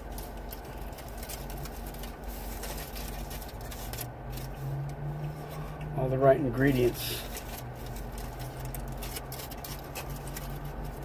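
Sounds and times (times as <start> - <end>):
wrapper crinkling: 0.0 - 4.9, 6.6 - 11.0
low car interior hum: 0.0 - 11.0
person chewing: 3.5 - 6.0.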